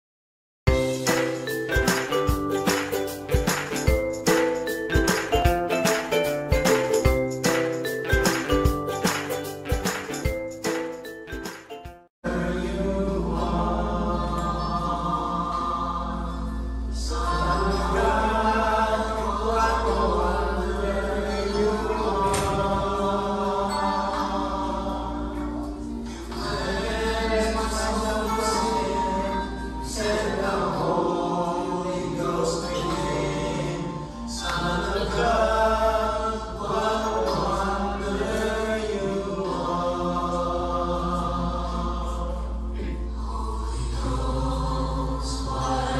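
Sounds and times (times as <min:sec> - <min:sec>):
men singing together: 0:12.2 - 0:25.3, 0:26.3 - 0:45.9.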